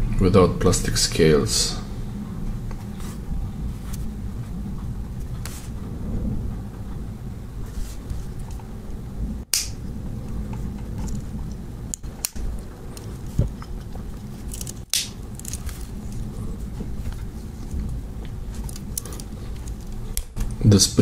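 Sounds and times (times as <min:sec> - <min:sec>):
low steady rumble: 0:00.0 - 0:21.0.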